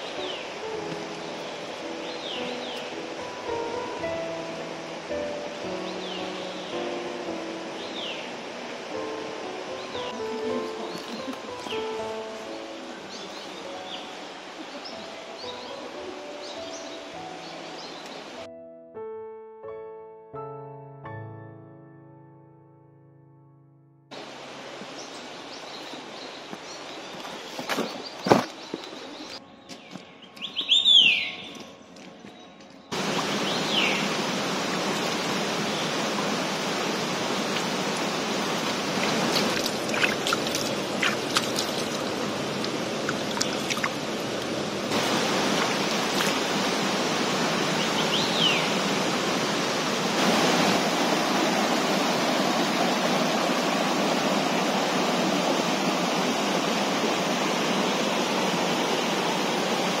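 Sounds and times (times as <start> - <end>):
mountain stream rushing over rocks: 0.0 - 18.4, 24.1 - 29.4, 32.9 - 60.0
bird whistle: 30.4 - 31.6
small water splashes: 33.0 - 47.3.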